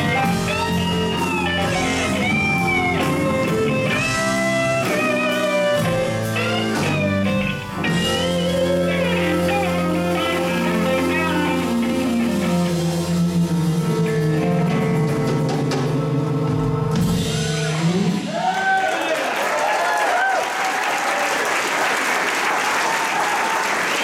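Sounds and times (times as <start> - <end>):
blues rock band playing: 0.0 - 18.8.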